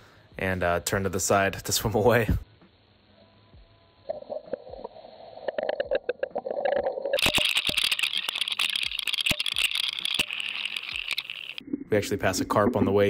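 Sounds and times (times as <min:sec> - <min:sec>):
faint underwater hum: 0:00.0 - 0:13.0
underwater clicks and rattles: 0:05.6 - 0:11.9
rushing hiss with sharp clicks: 0:07.2 - 0:11.6.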